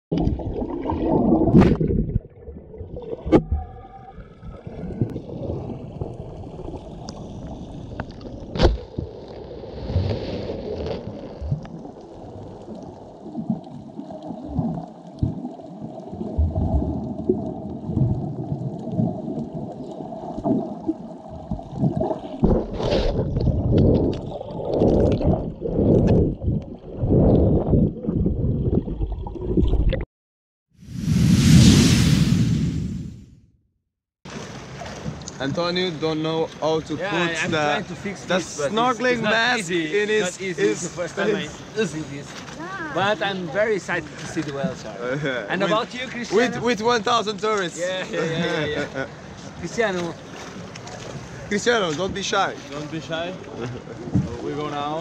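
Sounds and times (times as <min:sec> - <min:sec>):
muffled underwater rush: 0:00.1 - 0:30.0, 0:30.8 - 0:33.3.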